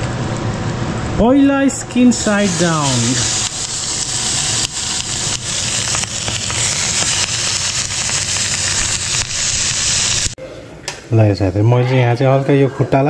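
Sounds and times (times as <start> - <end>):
chicken sizzling in frying pan: 2.3 - 10.4.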